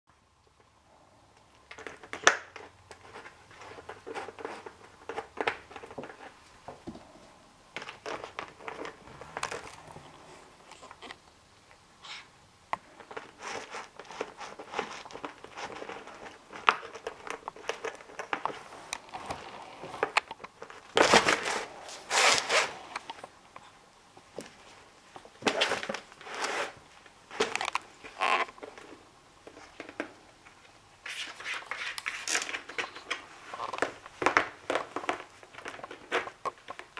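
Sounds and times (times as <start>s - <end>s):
plastic cone crinkling and rustling: 1.4s - 36.9s.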